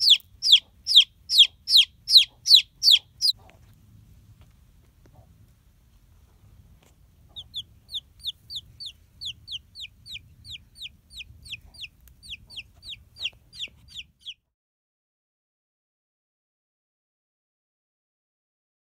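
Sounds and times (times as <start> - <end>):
chick peeping loudly: 0.0 - 3.6, 7.2 - 14.4.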